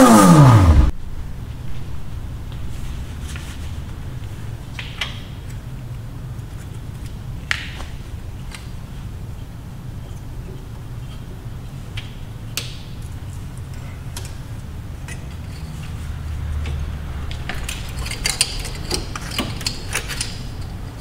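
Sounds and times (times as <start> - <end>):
steady low hum: 0.0 - 21.0
metal tools clinking: 15.0 - 21.0.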